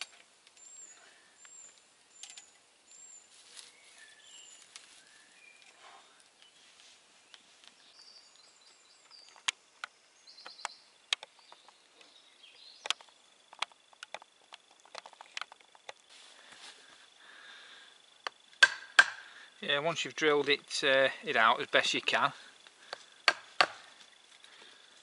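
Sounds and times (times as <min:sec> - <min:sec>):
small birds chirping: 0:00.0 - 0:18.6, 0:19.2 - 0:25.0
campfire crackling and popping: 0:12.7 - 0:16.6, 0:22.0 - 0:25.0
chisel knocking in wood: 0:18.6 - 0:19.2, 0:23.3 - 0:23.8.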